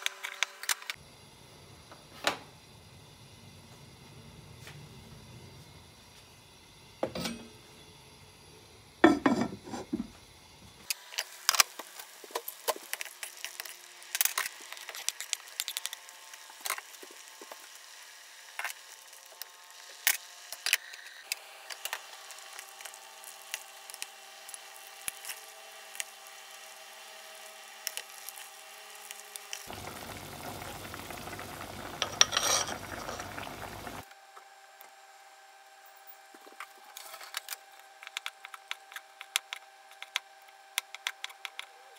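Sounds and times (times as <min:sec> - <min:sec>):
broth bubbling and sizzling: 0:08.0 - 0:20.6, 0:21.2 - 0:34.1
pot knocking: 0:09.0 - 0:10.1.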